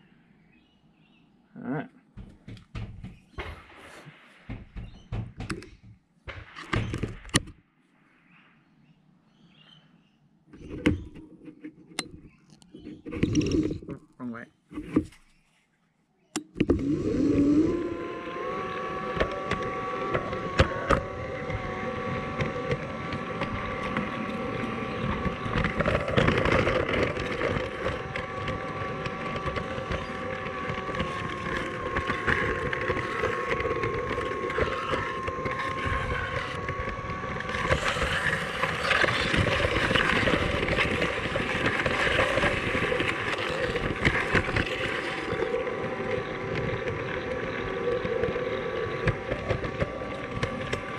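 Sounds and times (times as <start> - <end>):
small electric motor whining: 12.8 - 13.9, 16.4 - 50.9
wheels rattling on track: 17.7 - 50.9.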